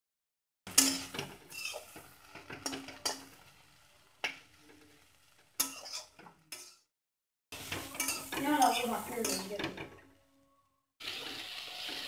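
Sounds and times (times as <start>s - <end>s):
spatula clanking against pan: 0.7s - 3.4s, 5.6s - 6.9s, 7.6s - 10.0s
metal spatula scraping pan: 0.7s - 3.5s, 4.3s - 6.8s, 7.6s - 10.0s
faint frying: 0.7s - 6.9s, 7.5s - 10.4s, 11.0s - 12.0s.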